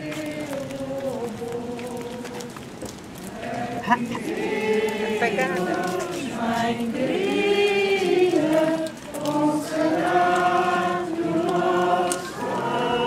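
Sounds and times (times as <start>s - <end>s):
crowd singing a hymn: 0.0s - 2.6s, 3.2s - 13.0s.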